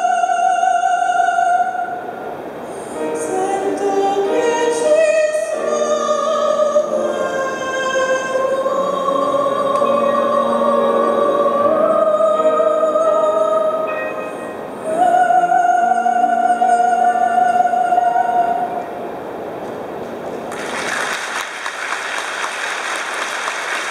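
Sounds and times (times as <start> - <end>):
woman singing long held notes: 0.0 - 2.2, 2.8 - 19.0
audience applause: 20.5 - 23.9.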